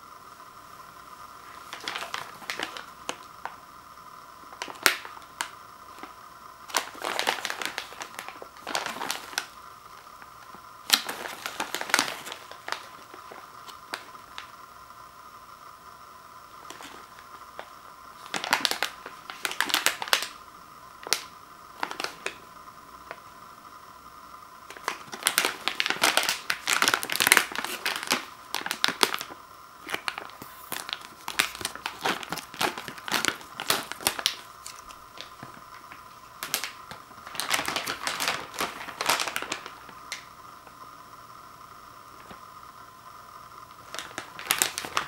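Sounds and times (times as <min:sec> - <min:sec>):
plastic bag crinkling: 0:01.4 - 0:03.6, 0:04.5 - 0:14.5, 0:16.6 - 0:20.4, 0:21.0 - 0:22.4, 0:24.7 - 0:40.4, 0:43.8 - 0:45.0
plastic bag tearing: 0:01.5 - 0:03.3, 0:06.7 - 0:09.5, 0:10.8 - 0:14.1, 0:18.2 - 0:20.3, 0:24.7 - 0:40.3, 0:43.8 - 0:45.0.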